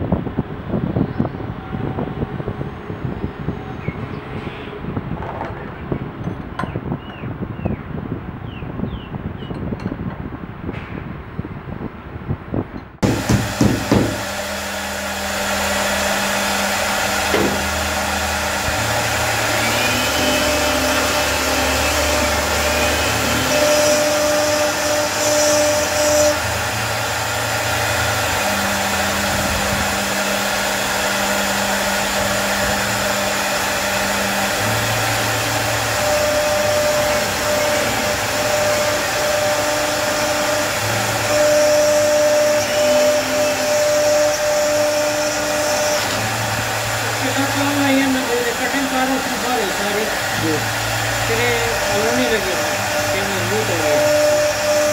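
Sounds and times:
pitched motor tones: 0.0s - 10.3s, 13.0s - 54.9s
wood router spindle hiss: 13.0s - 54.9s.

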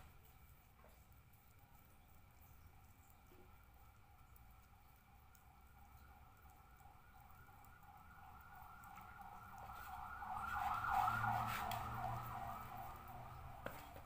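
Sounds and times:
emergency siren yelping: 4.8s - 14.0s.

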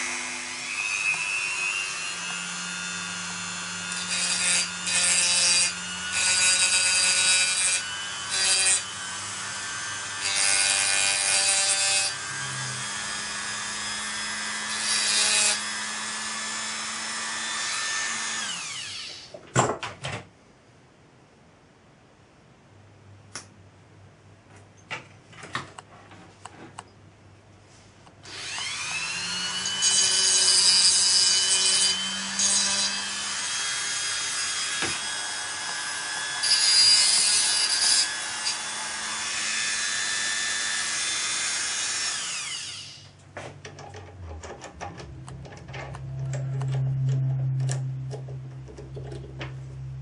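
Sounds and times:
cutting wheel grinding glass: 0.0s - 19.3s, 28.4s - 43.0s
rotary tool whining: 28.2s - 43.2s, 43.8s - 49.8s.

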